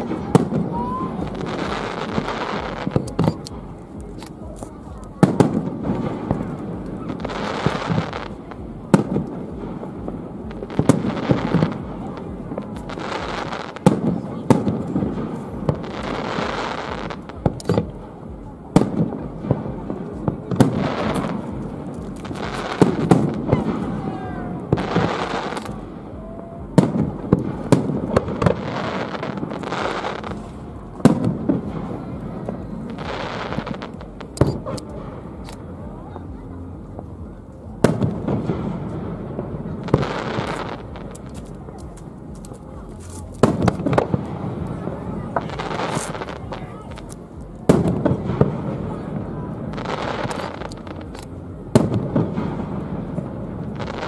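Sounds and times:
light firework pops: 0.0s - 18.1s, 18.7s - 24.0s, 24.6s - 25.9s, 26.8s - 35.7s, 37.8s - 39.1s, 39.8s - 44.8s, 45.4s - 53.0s
firework hiss: 18.8s - 35.6s, 37.8s - 54.0s.

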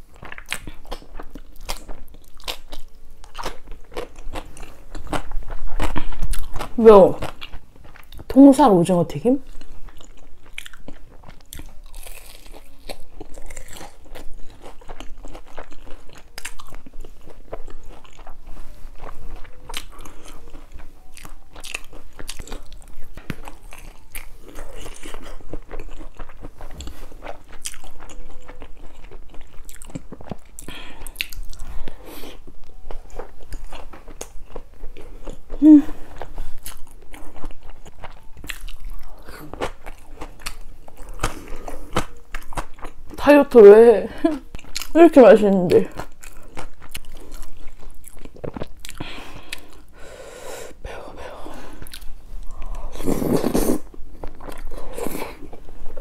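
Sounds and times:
chewing crunchy fried food: 0.0s - 56.0s
person humming: 35.5s - 36.0s.

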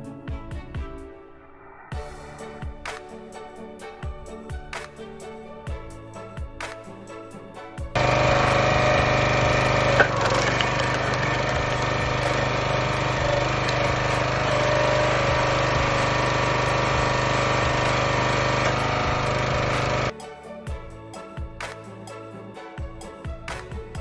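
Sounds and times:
hydraulic log splitter running: 8.0s - 20.1s
sharp crack of splitting wood: 9.9s - 12.4s.

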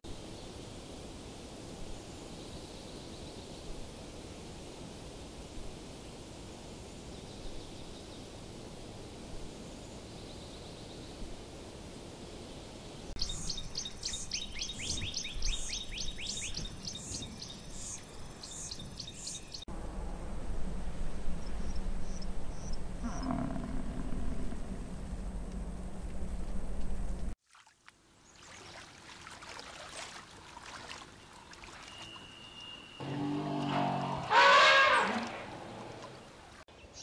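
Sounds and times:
steady outdoor background: 0.1s - 37.0s
soft bird chirps: 31.1s - 33.0s
songbird whistling: 31.9s - 33.0s.

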